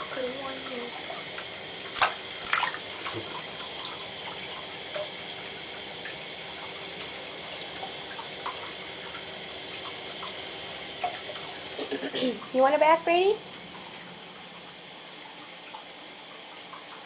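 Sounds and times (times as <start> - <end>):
water running from tap: 0.0 - 17.0
faint small splashes: 1.9 - 3.4.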